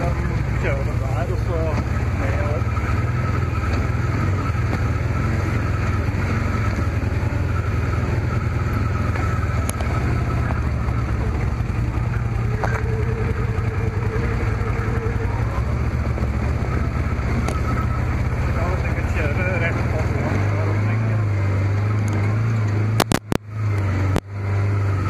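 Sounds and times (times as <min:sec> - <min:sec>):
thin steady whine: 0:00.0 - 0:25.0
vehicle engine low rumble: 0:00.0 - 0:25.0.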